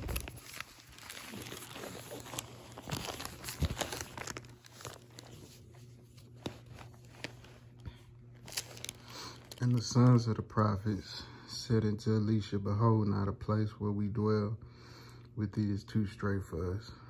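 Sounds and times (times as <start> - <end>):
paper pages rustling: 0.0 - 10.2.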